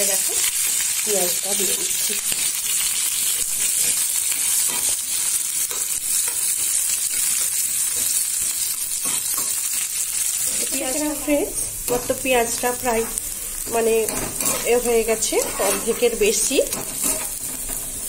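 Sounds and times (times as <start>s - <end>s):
onions sizzling in hot oil: 0.0s - 18.0s
spatula scraping a pan: 3.4s - 9.6s, 11.9s - 18.0s.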